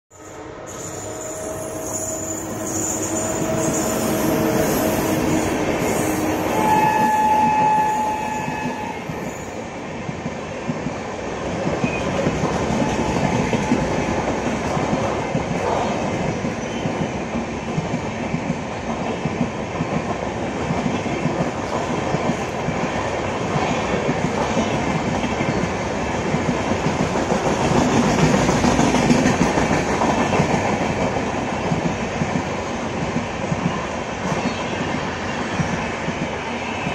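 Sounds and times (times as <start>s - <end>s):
train horn blast: 1.0s - 9.3s, 12.8s - 13.9s
train wheels clacking over rail joints: 23.5s - 32.5s.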